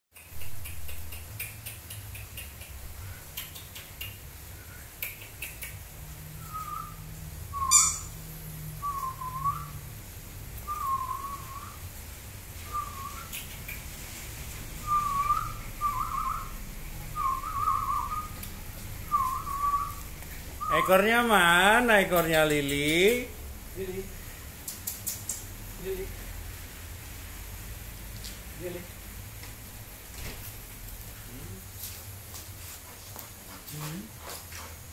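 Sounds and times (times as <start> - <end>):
sharp click: 24.6 - 25.5.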